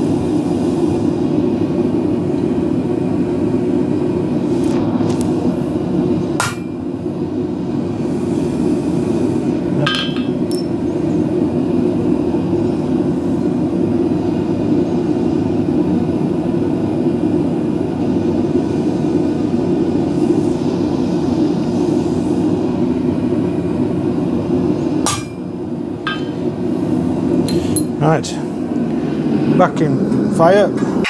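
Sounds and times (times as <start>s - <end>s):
hammer striking metal stamp: 6.4s - 6.8s, 9.9s - 10.6s, 26.1s - 26.3s.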